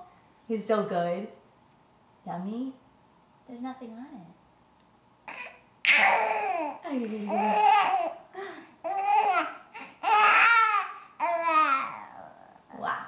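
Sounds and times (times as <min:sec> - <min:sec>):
infant babbling: 0:05.3 - 0:08.2, 0:08.8 - 0:12.6.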